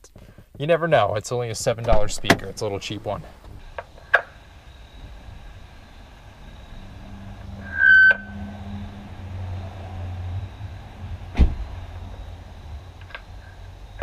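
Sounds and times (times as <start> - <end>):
car door shutting: 1.8 - 2.6, 11.3 - 11.7
low hum: 1.9 - 14.0
loud high beep: 7.6 - 8.5.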